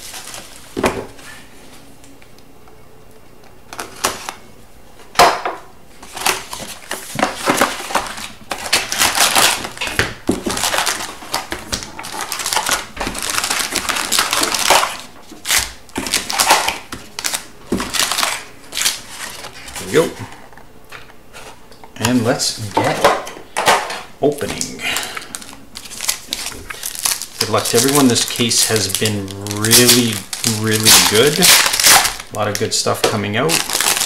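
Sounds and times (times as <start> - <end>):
foil packs crinkling: 0.0 - 1.3, 6.0 - 20.3, 24.3 - 34.0
paper and cardboard rustling: 0.0 - 1.8, 6.0 - 20.4, 24.4 - 32.7.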